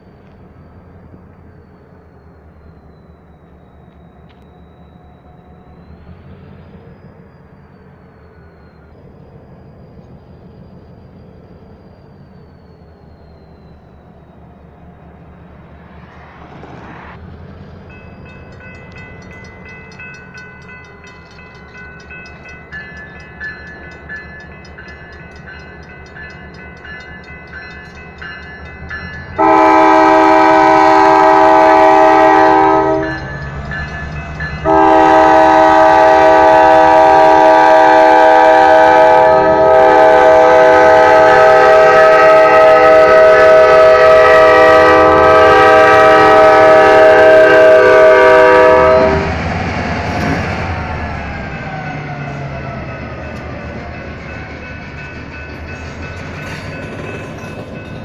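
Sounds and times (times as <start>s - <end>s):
railroad crossing bell ringing: 0.0s - 15.7s, 17.7s - 49.3s, 50.0s - 58.0s
locomotive air horn blasts: 29.4s - 33.2s, 34.6s - 49.3s.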